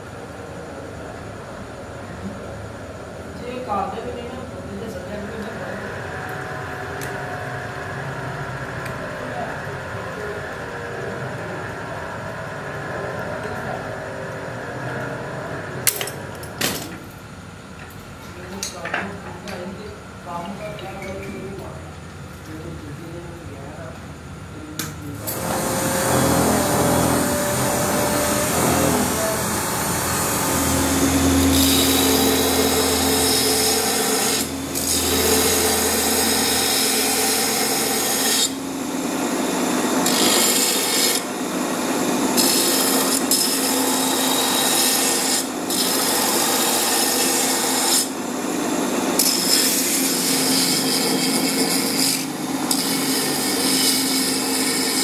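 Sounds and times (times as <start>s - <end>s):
machine hum: 0.0s - 18.5s, 19.2s - 55.0s
belt grinder grinding: 25.2s - 38.6s, 39.7s - 41.7s, 42.3s - 48.2s, 48.9s - 55.0s.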